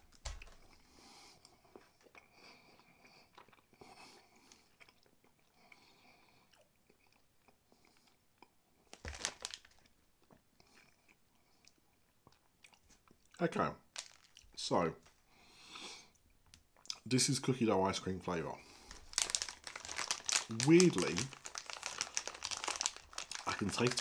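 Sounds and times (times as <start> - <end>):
close-mouthed chewing: 0.3 - 8.6, 10.2 - 13.4
biscuit crunching: 8.4 - 13.3, 13.9 - 14.6, 18.8 - 24.0.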